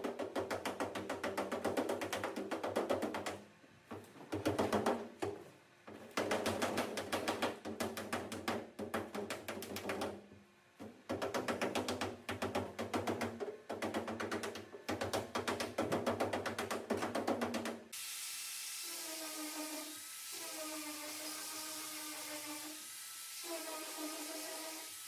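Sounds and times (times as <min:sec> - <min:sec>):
hammer tapping on sheet metal: 0:00.0 - 0:05.4, 0:06.0 - 0:17.8.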